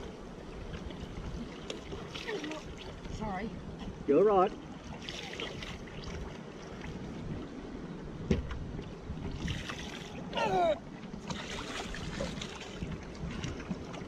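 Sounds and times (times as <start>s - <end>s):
water lapping and splashing: 0.0s - 14.0s
brief wavering cry: 10.3s - 10.8s.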